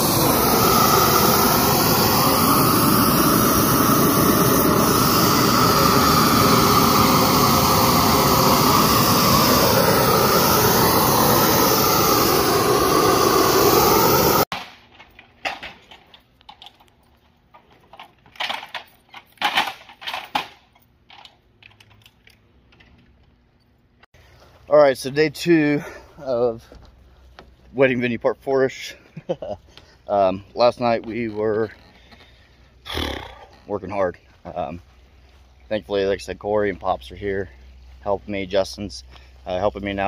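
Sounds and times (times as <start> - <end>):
loud steady rushing roar: 0.0 - 14.5.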